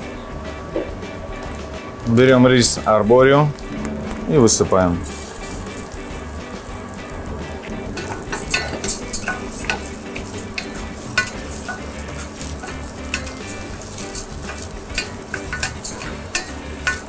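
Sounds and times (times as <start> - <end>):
rice sizzling in oil: 5.0 - 17.0.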